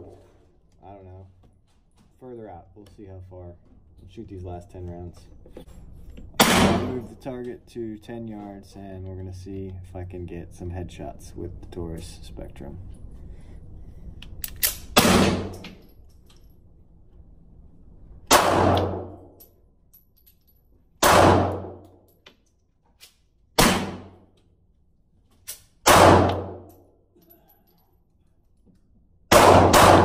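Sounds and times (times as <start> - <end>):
pistol shots echoing: 6.4 - 7.0, 15.0 - 15.6, 18.3 - 19.2, 21.0 - 21.8, 23.6 - 24.1, 25.8 - 26.7, 29.3 - 30.0.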